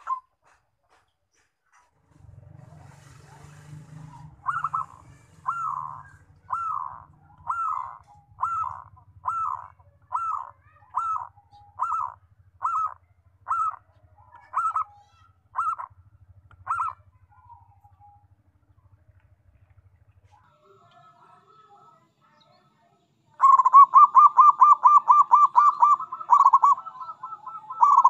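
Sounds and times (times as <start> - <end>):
dove cooing: 0.0 - 0.6, 2.3 - 18.5, 23.3 - 28.0.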